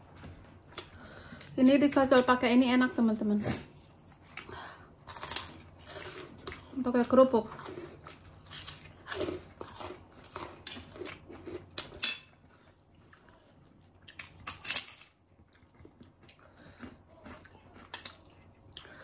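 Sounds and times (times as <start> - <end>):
crunching crackers being chewed: 3.8 - 6.8, 7.5 - 19.0.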